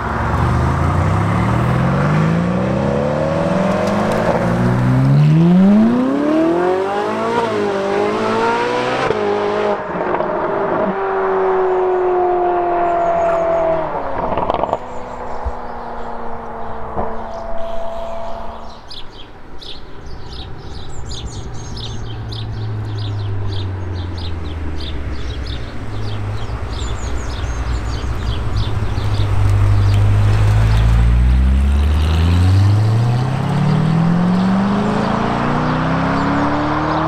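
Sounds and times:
car engine revving: 0.0 - 19.0, 20.8 - 37.0
birds chirping: 11.4 - 37.0.

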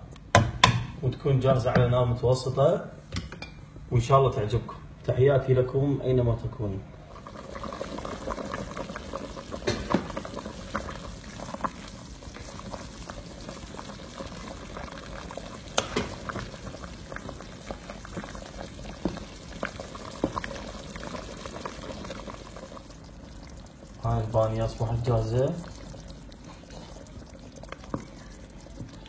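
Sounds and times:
stew bubbling in a pot: 6.8 - 29.0.

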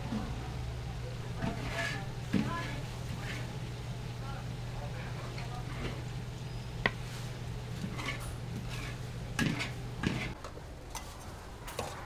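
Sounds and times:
steady low hum: 0.0 - 12.0
cooking utensils and dishes clinking: 1.3 - 3.8, 4.8 - 12.0.

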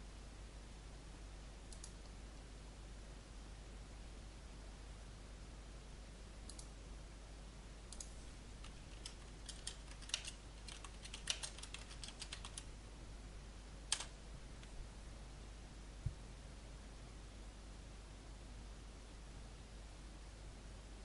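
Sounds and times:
faint low hum: 0.0 - 21.0
keyboard typing: 7.9 - 12.7, 13.9 - 14.1.

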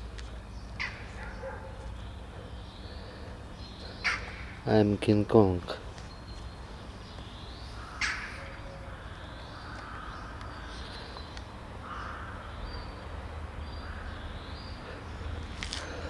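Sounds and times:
low outdoor rumble: 0.0 - 16.0
crows cawing: 0.8 - 1.6, 3.9 - 4.6, 7.8 - 11.2, 11.8 - 12.8, 13.7 - 15.1.

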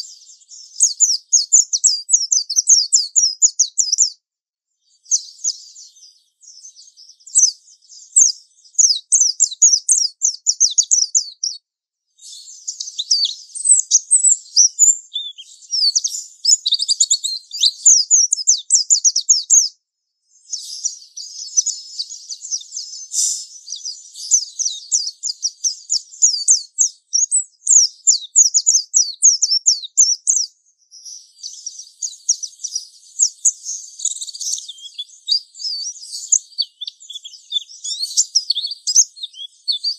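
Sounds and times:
bird twittering song: 0.0 - 4.2, 4.8 - 39.9.

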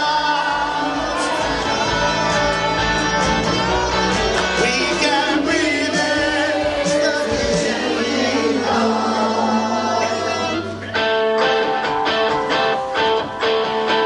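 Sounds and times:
group of voices singing: 0.0 - 11.0
musical backing: 0.0 - 14.0.

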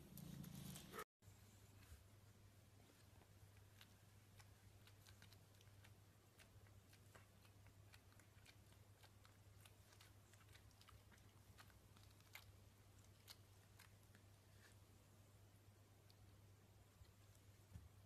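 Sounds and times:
faint low hum: 0.0 - 18.0
soft irregular clicks: 3.0 - 14.7.

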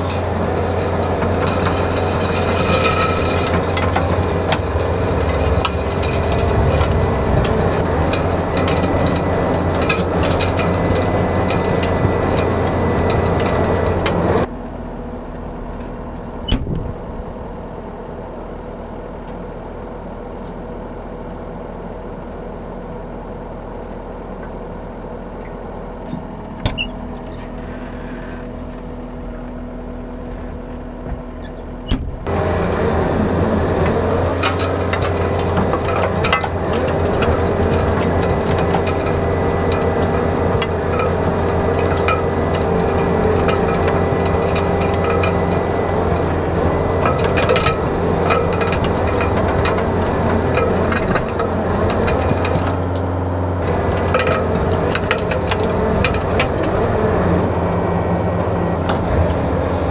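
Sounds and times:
power rake tearing sod: 0.0 - 14.5, 32.2 - 57.8, 58.7 - 59.9
steady machine hum: 0.0 - 16.2, 32.1 - 59.9
loader engine working hard: 0.0 - 59.9.

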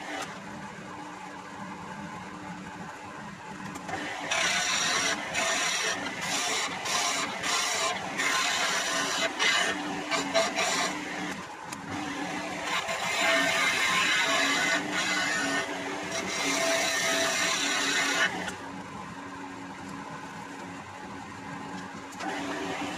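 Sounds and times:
chisel scraping spinning wood: 3.9 - 11.4, 12.0 - 18.6
wood lathe humming: 3.9 - 18.7.

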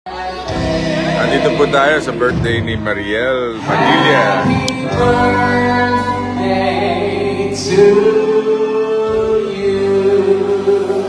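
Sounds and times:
live band playing: 0.1 - 11.0
voices singing long notes: 3.5 - 11.0.

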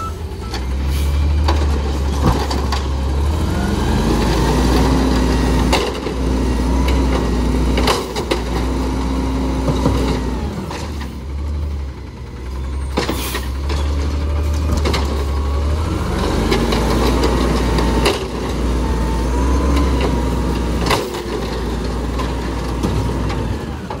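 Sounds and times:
garbage truck diesel engine: 0.0 - 24.0
carts banging against hopper: 5.6 - 8.8, 19.8 - 24.0.

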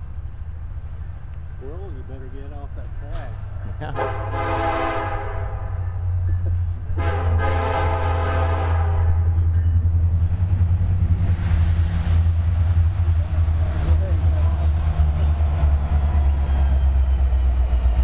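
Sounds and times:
locomotive engine rumble: 0.0 - 18.0
train air horn blasts: 3.9 - 6.0, 6.9 - 9.5.

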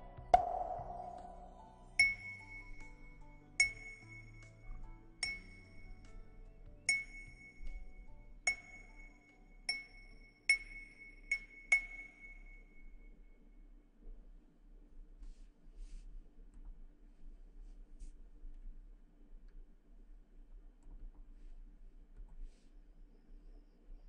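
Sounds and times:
ringing object tapped: 0.2 - 6.2, 6.8 - 13.1.

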